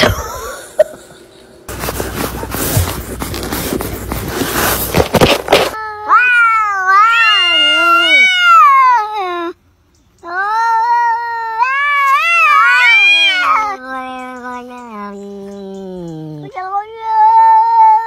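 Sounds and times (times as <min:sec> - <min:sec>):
cat yowling: 0:05.8 - 0:09.4, 0:10.3 - 0:14.2.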